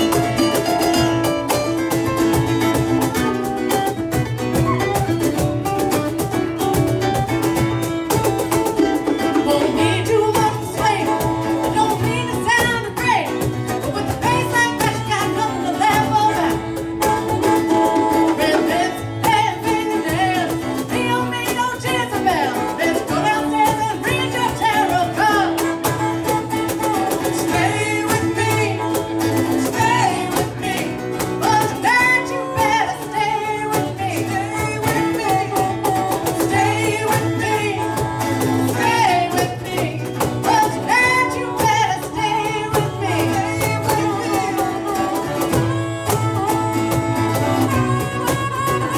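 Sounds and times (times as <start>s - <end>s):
drum kit: 0.0s - 21.1s
acoustic guitars: 0.0s - 48.9s
woman singing: 4.6s - 48.9s.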